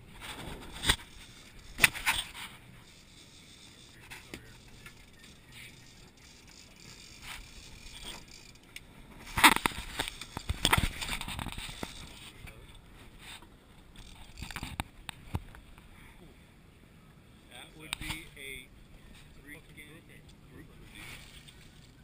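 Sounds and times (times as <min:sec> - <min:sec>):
gear scraping: 0:00.2 - 0:12.6.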